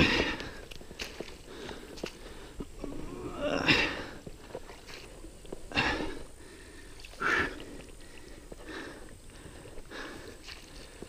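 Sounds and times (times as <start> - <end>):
mud squelching: 0.0 - 11.0
man grunting and breathing: 2.8 - 4.2.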